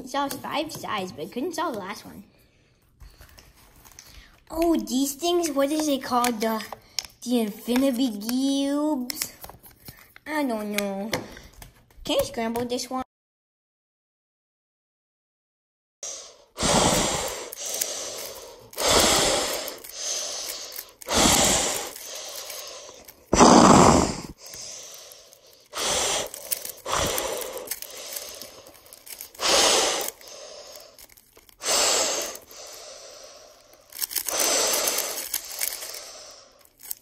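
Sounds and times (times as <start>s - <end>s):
puzzle cube clacking: 16.9s - 32.6s, 33.7s - 37.0s.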